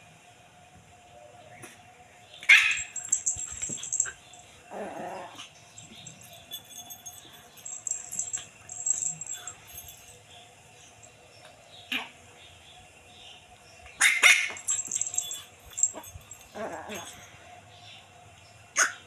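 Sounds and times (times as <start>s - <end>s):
puppy barking and yapping: 2.5s - 10.1s, 14.0s - 17.3s.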